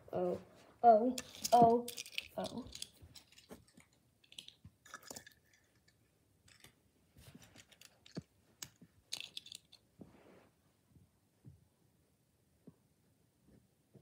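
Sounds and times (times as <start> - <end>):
soft clicks of toy cars: 1.2 - 9.8.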